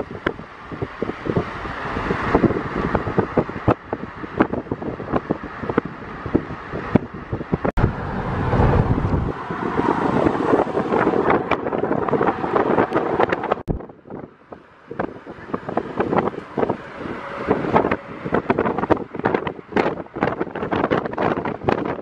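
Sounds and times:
car road noise: 0.0 - 22.0
wind buffeting microphone: 0.0 - 22.0.

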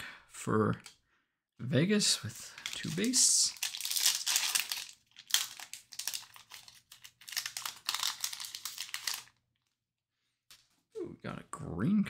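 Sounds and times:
foil wrapper crinkling: 2.5 - 9.4.

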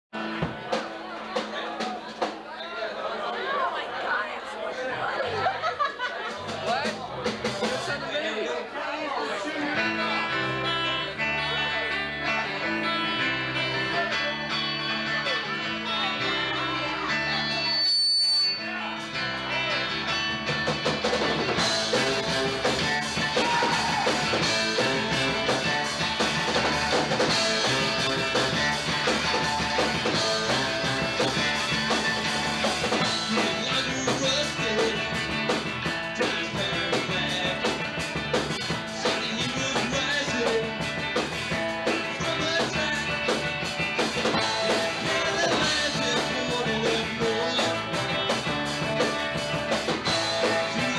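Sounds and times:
drums and cymbals: 0.2 - 2.5, 6.2 - 8.0, 20.3 - 50.9
electric guitars: 9.2 - 17.9, 18.6 - 50.9
electric bass: 9.8 - 17.8, 18.6 - 50.9.

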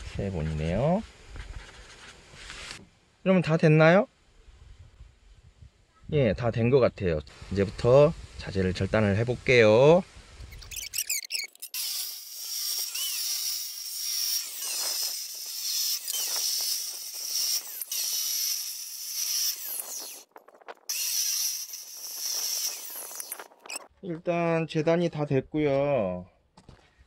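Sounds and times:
chop saw cutting steel tubing: 10.6 - 20.3, 20.9 - 23.9.

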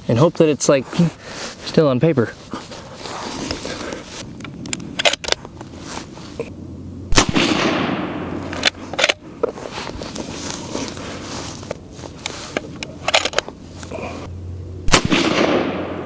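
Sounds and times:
rifle bolt clicks: 4.4 - 5.4, 8.5 - 9.2, 12.2 - 13.5
gunshot echo: 7.1 - 8.4, 14.9 - 16.0
suppressed rifle shot: 7.1 - 9.2, 14.9 - 16.0.

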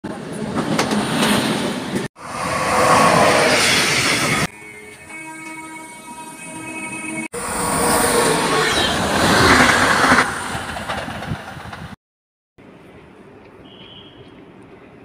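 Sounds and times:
train passing at speed: 0.1 - 12.0
station background: 1.7 - 10.0.

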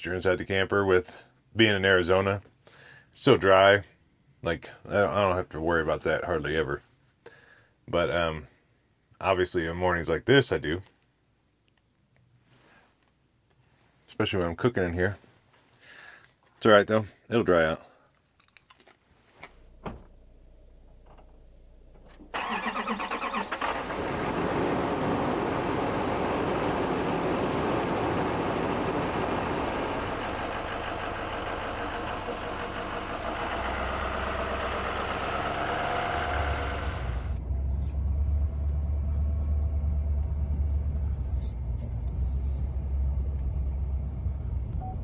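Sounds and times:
deep low engine rumble: 19.6 - 22.5, 23.8 - 45.0
pickup truck engine starting: 19.7 - 45.0
truck engine running: 20.1 - 45.0.

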